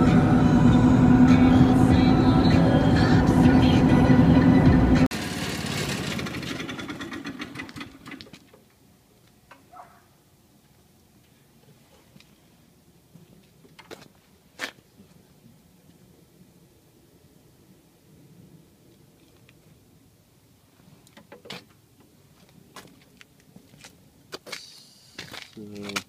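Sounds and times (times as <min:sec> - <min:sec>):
vehicle drone inside cab: 0:00.0 - 0:06.4.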